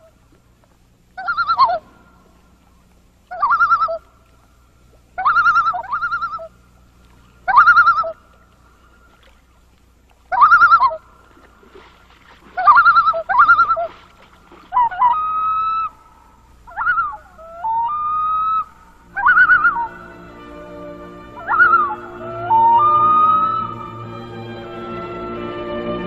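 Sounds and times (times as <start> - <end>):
loon calling: 1.2 - 2.4, 3.2 - 4.4, 5.2 - 6.7, 7.4 - 9.2, 10.2 - 11.4, 12.4 - 24.1
music with low sustained chord: 19.0 - 26.0.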